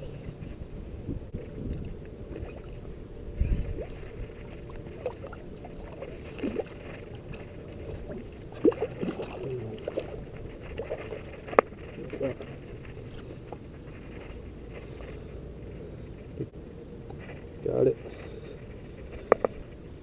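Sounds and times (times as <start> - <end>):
fish splashing in water: 3.5 - 11.9.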